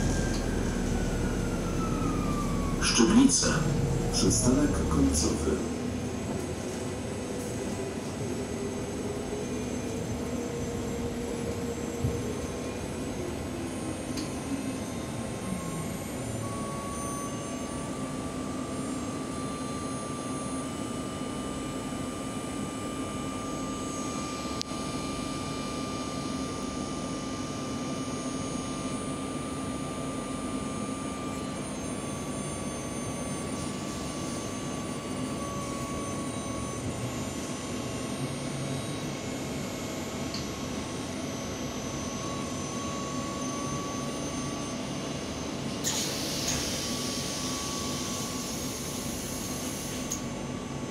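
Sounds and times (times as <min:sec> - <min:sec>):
bus engine idling with whine: 0:00.0 - 0:50.9
pneumatic door air hiss: 0:45.8 - 0:50.2.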